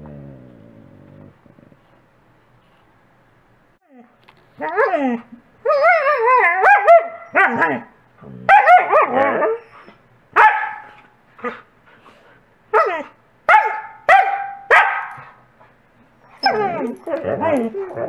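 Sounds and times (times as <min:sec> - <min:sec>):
dog barking sharply: 0:10.4 - 0:10.9, 0:13.5 - 0:15.2
dog whining: 0:16.2 - 0:18.0.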